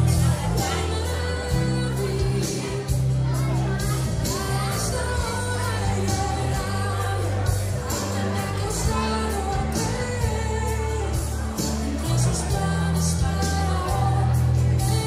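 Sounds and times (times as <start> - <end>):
pop music with singing: 0.0 - 15.0.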